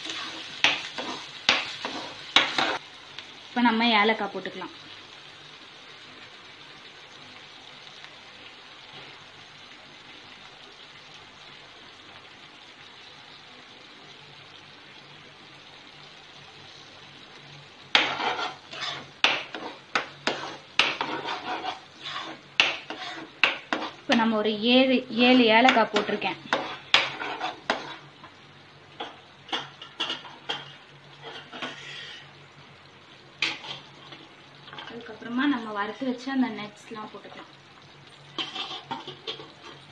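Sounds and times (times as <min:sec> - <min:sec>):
metal spoon scraping a pan: 0:00.0 - 0:02.8, 0:17.9 - 0:24.3, 0:25.7 - 0:28.1, 0:29.0 - 0:32.3, 0:33.4 - 0:35.0, 0:38.3 - 0:39.9.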